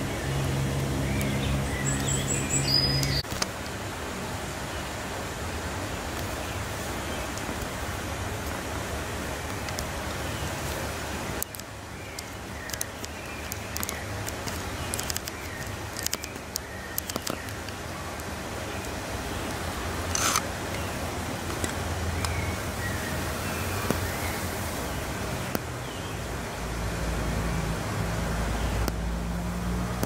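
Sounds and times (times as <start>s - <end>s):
sharp clicks: 11.4s - 18.3s.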